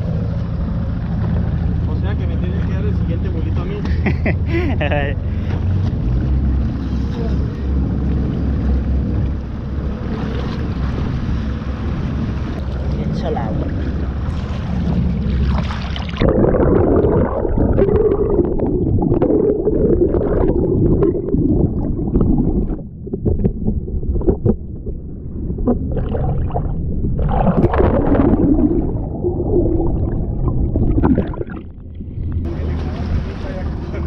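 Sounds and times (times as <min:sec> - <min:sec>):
muffled gurgling water: 0:00.0 - 0:34.0
underwater knocks: 0:16.3 - 0:29.0.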